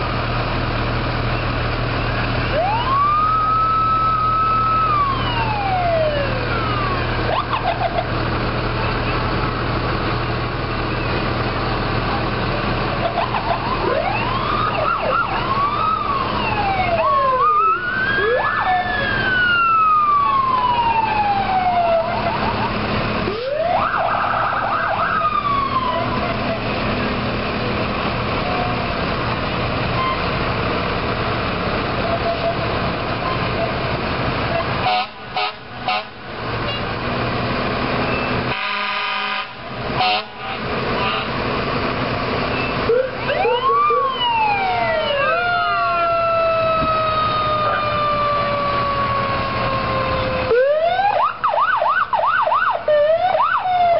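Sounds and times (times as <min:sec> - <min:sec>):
fire truck sirens: 0:00.0 - 0:53.9
truck engines rumbling: 0:00.0 - 0:53.9
fire truck horns: 0:32.0 - 0:52.8.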